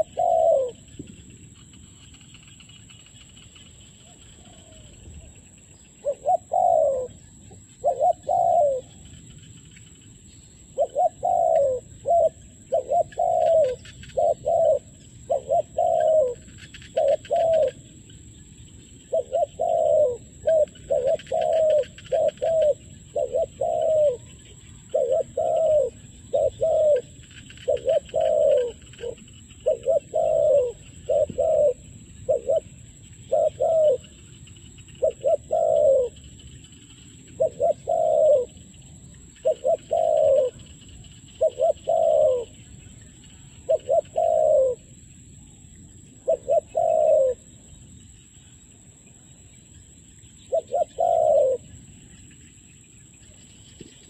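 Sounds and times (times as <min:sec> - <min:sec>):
dove cooing: 0:00.0 - 0:01.0, 0:04.0 - 0:05.4, 0:06.0 - 0:09.2, 0:10.7 - 0:17.8, 0:19.1 - 0:34.3, 0:35.0 - 0:36.4, 0:37.0 - 0:38.8, 0:39.4 - 0:42.6, 0:43.5 - 0:45.0, 0:46.2 - 0:47.5, 0:50.5 - 0:51.7.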